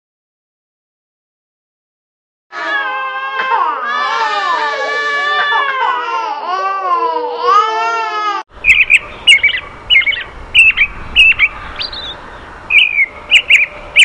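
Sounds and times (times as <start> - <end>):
infant crying: 2.5 - 8.5
lovebird chirping: 8.6 - 14.0.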